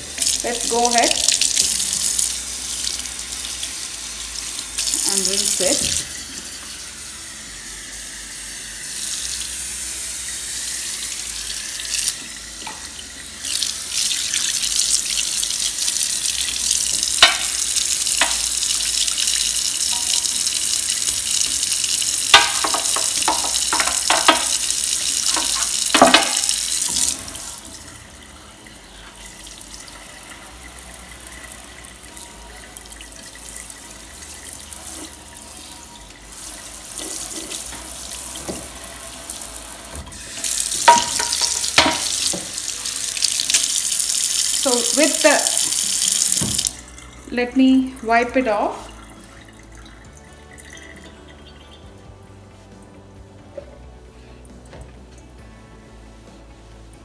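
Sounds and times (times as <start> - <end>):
tap water splashing in sink: 16.8 - 27.4, 37.0 - 38.9, 39.9 - 42.6, 43.2 - 46.8.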